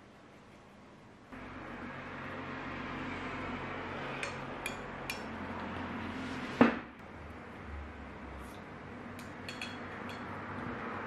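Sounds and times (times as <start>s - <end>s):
metal spoon clinking porcelain bowl: 9.2s - 10.4s.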